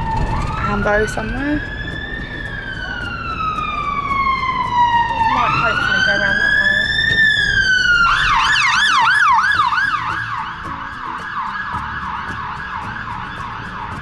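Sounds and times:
ambulance siren wail and yelp: 0.0s - 14.0s.

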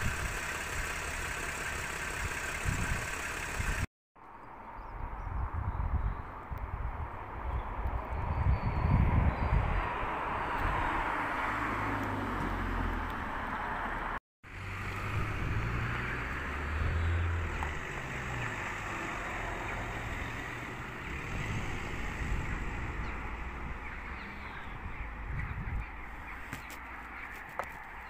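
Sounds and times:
vehicle engine humming: 0.0s - 3.9s, 10.1s - 28.0s
wind on microphone: 4.8s - 11.2s, 15.0s - 15.8s, 21.2s - 26.4s.

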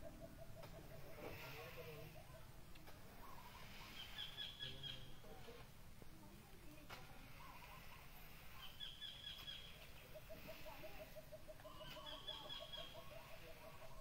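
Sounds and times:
low repeated bird notes: 3.1s - 5.3s
high chirping bird: 8.6s - 14.0s.

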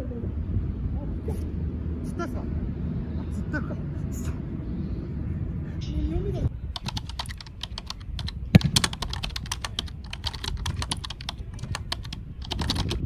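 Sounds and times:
keyboard typing clicks: 6.8s - 13.0s.

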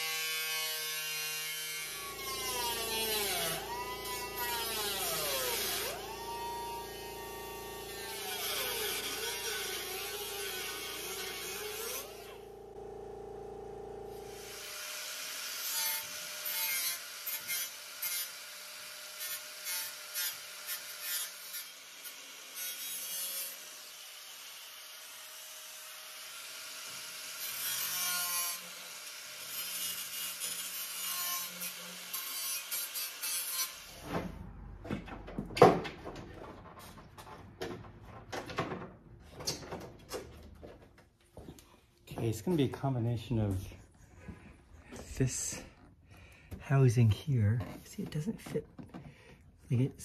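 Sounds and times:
angle grinder grinding metal: 0.0s - 34.0s
sharp knocks and clatter: 34.0s - 42.4s.

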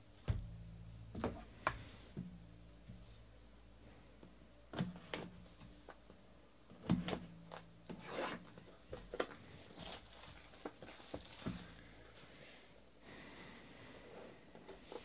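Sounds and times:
box and wrapping rustling: 7.5s - 12.0s.

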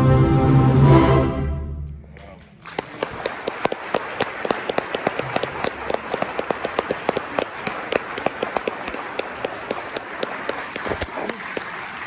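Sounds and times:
audience applauding: 2.4s - 12.0s
close hand claps: 2.4s - 12.0s.

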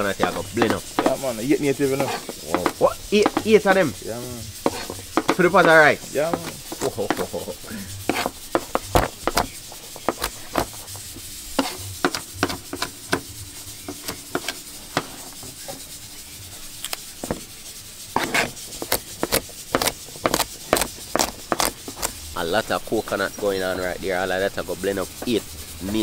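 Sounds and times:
knife chopping on plastic board: 0.1s - 1.3s, 2.0s - 3.7s, 4.6s - 7.4s, 8.1s - 10.8s, 11.6s - 13.3s, 13.9s - 15.2s, 18.2s - 22.2s.

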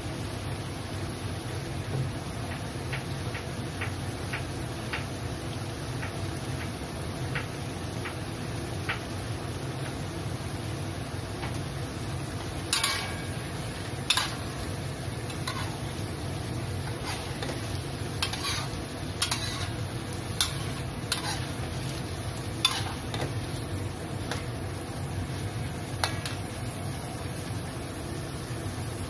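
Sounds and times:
frying sizzle: 0.0s - 29.0s
spatula scraping a wok: 12.7s - 16.1s, 16.7s - 23.6s.

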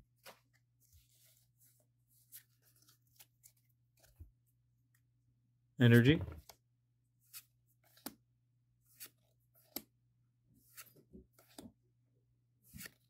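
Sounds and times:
trading cards sliding: 7.2s - 8.2s, 8.8s - 10.0s, 10.6s - 11.8s, 12.6s - 13.0s.

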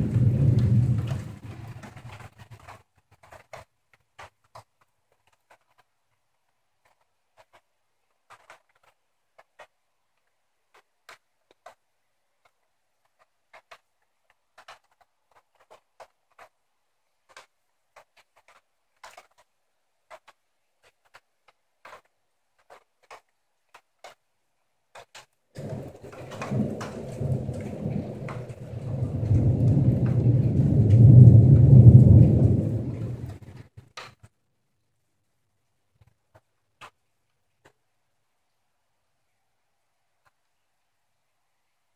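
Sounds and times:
thunder rumbling: 0.0s - 2.8s, 25.6s - 33.9s.

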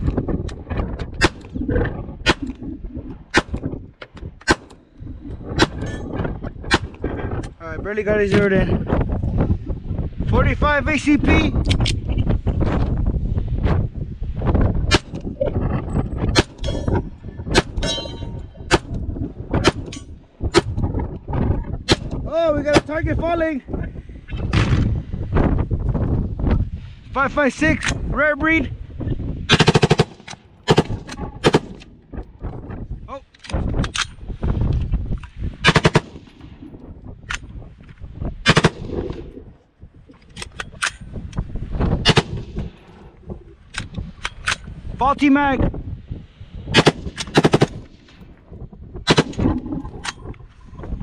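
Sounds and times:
steel target clanging: 17.8s - 18.6s
pistol shots: 29.5s - 31.9s, 35.6s - 36.3s, 49.1s - 49.5s
rifle gunshots: 29.5s - 31.9s, 35.6s - 36.3s, 38.4s - 39.2s, 42.0s - 42.8s, 46.8s - 47.8s, 49.1s - 49.5s.

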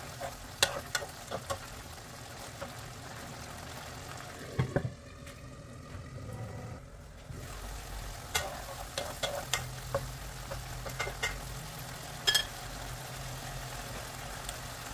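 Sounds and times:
food sizzling in pan: 0.0s - 4.6s, 7.3s - 14.9s
wooden spatula scraping pan: 8.4s - 11.2s.

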